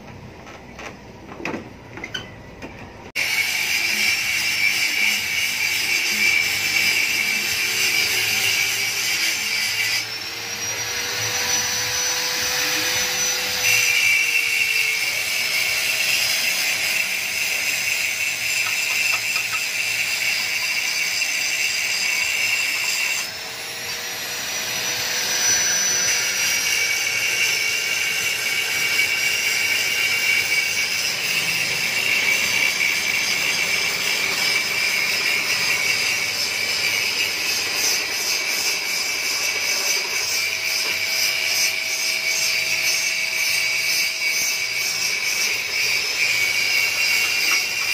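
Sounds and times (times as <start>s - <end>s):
angle grinder grinding metal: 3.1s - 47.9s.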